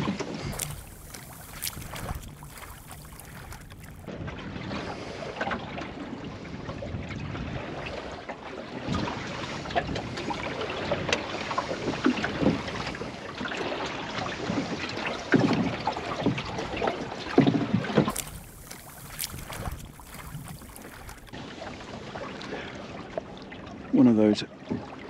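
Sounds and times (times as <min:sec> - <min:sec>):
water lapping against boat hull: 0:00.5 - 0:04.1, 0:17.4 - 0:21.4.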